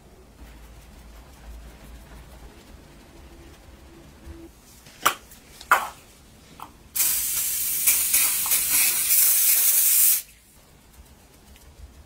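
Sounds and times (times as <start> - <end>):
aerosol can spraying: 7.0 - 10.4.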